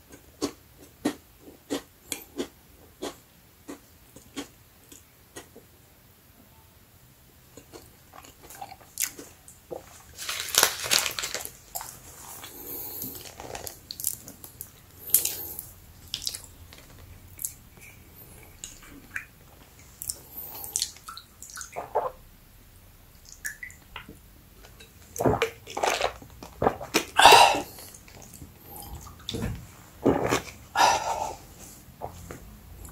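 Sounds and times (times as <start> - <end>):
crunchy snack chewing: 7.6 - 17.6.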